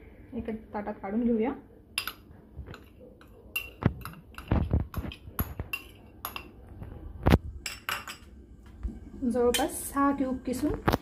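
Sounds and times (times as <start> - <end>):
metal spoon clinking on steel plate: 2.0 - 6.6, 7.6 - 8.3.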